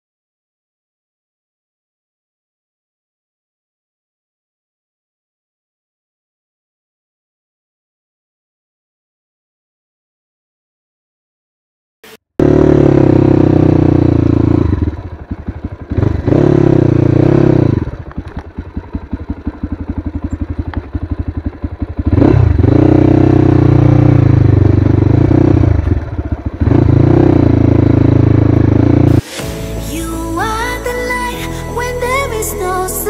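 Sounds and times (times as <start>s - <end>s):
dirt bike engine revving: 12.0s - 29.9s.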